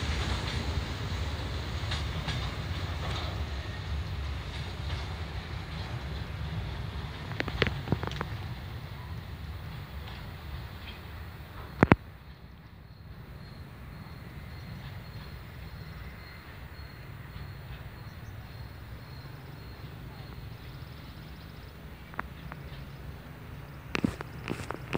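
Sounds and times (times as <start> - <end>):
distant freight train rumble: 0.0 - 24.9
insect chirping: 9.0 - 24.9.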